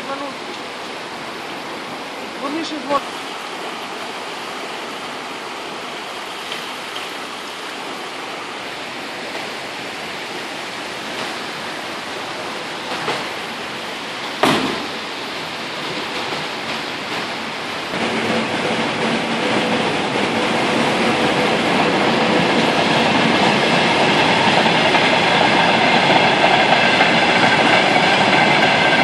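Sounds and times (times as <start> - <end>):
floodwater rushing over concrete: 0.0 - 29.0
sharp knock: 14.4 - 14.9.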